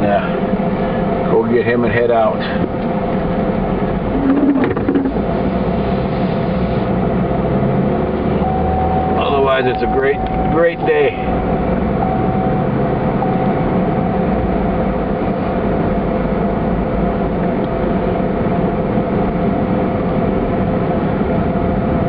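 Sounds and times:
tyre and engine rumble: 0.0s - 22.0s
faint steady tone: 8.4s - 15.1s.

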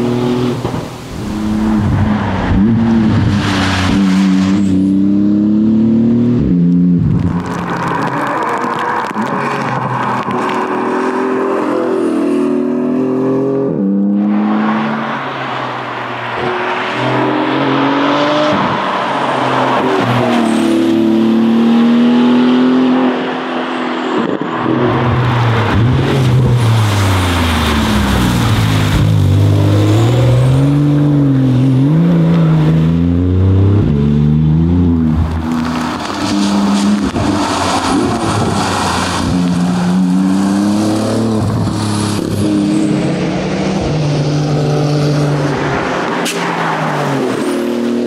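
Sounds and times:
race car engine at full pace: 0.0s - 48.0s.

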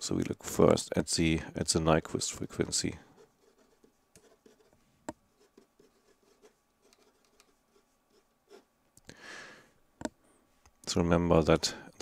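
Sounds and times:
marker writing on paper: 3.2s - 8.7s.

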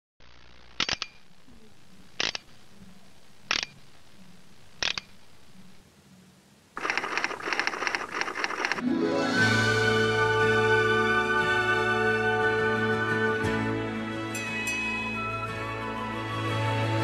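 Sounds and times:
faint steady hum: 0.2s - 8.8s
mechanical double clicks: 4.8s - 5.2s, 6.8s - 8.8s
dense crackling rattle: 6.8s - 8.8s.

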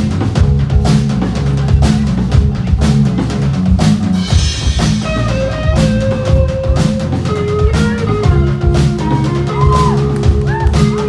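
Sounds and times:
bass and electric guitars: 0.0s - 11.0s
drum kit steady beat: 0.0s - 11.0s
held melody line: 4.3s - 11.0s.

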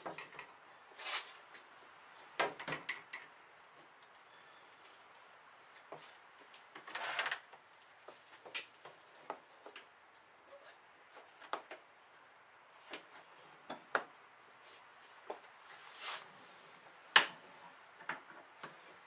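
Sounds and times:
rustling: 14.6s - 16.8s.

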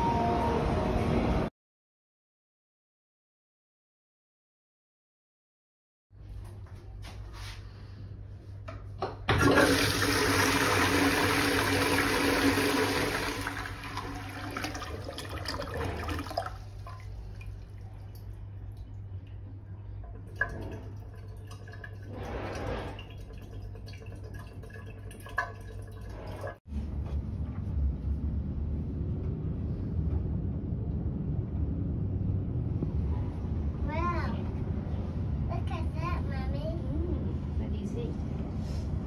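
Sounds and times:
toilet bowl refilling: 9.3s - 26.6s
toilet flushing: 9.3s - 26.6s
low steady rumble: 15.1s - 23.8s, 26.1s - 39.0s.

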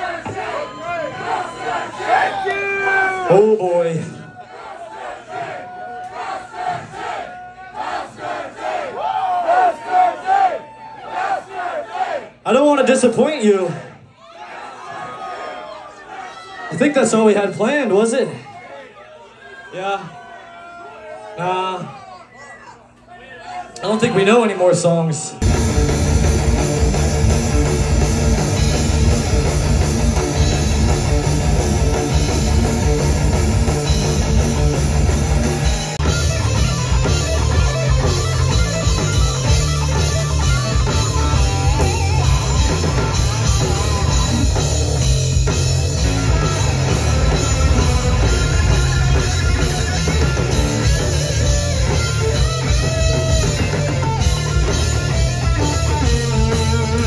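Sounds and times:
rock band playing: 25.4s - 57.0s.

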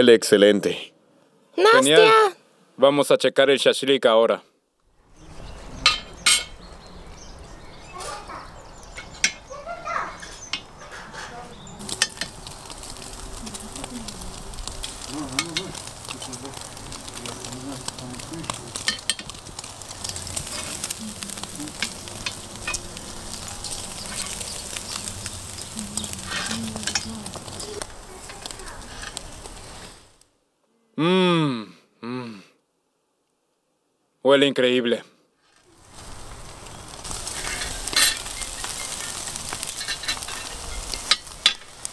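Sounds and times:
fat crackling on embers: 4.8s - 30.3s, 35.4s - 41.9s
meat sizzling over charcoal: 4.9s - 30.3s, 35.4s - 41.9s.

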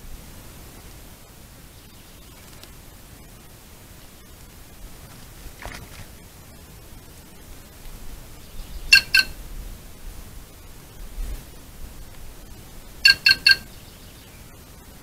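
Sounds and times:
jay calls: 8.8s - 9.4s, 13.0s - 13.8s.

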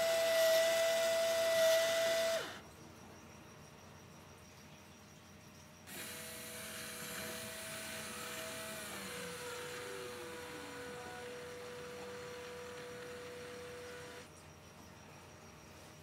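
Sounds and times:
electric motor whine: 0.0s - 2.6s, 5.9s - 14.3s.

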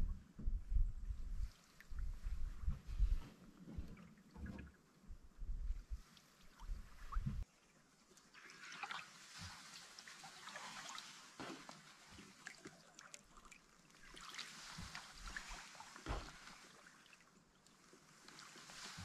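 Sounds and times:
paddle swishing through water: 1.3s - 19.0s
water drips and splashes: 6.0s - 19.0s.

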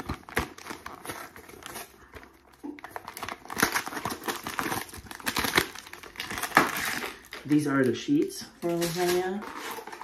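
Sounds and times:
cardboard box being torn open: 3.0s - 7.4s.

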